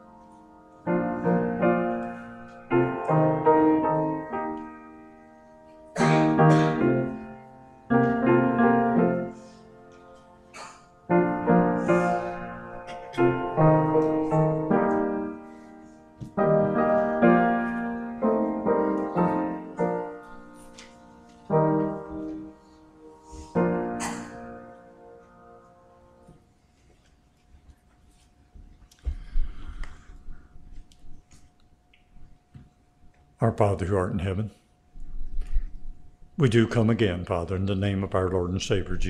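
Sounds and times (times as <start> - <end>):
slow piano chords: 0.0 - 26.8.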